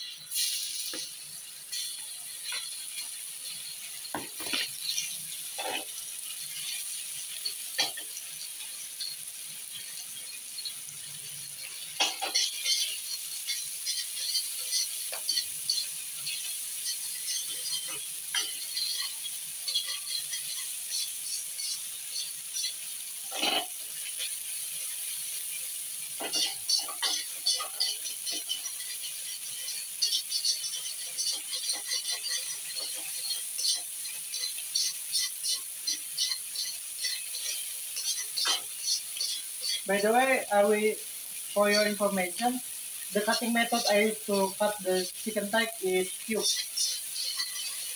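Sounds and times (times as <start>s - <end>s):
chicken sizzling in hot oil: 0.0s - 47.9s
utensil scraping and knocking pan: 29.7s - 33.8s, 46.4s - 47.9s.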